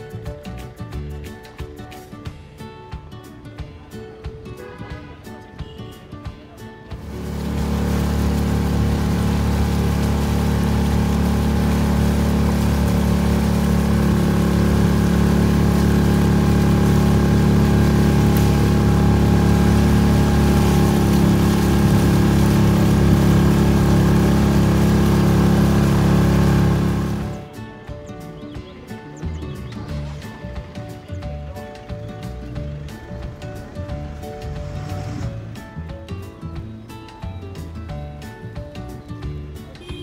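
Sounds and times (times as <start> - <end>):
engine droning: 7.0 - 27.6, 29.2 - 36.8.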